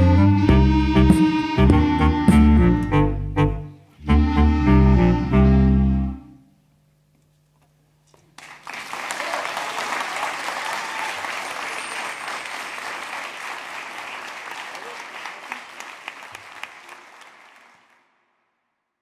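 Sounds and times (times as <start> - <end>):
clarinet ensemble chord: 0.0 - 6.6
audience applause: 8.4 - 18.1.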